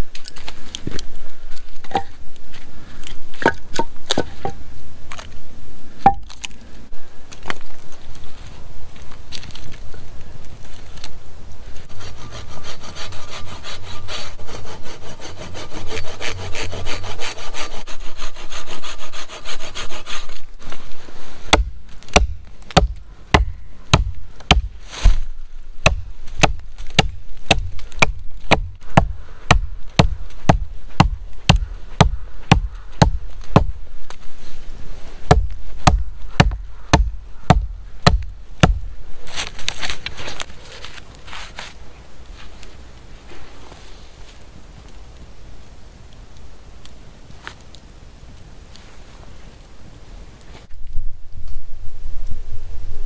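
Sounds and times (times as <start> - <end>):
saw cutting wood: 11.9 - 20.4
hatchet chopping log: 21.5 - 25.2, 25.8 - 33.7, 35.3 - 38.9.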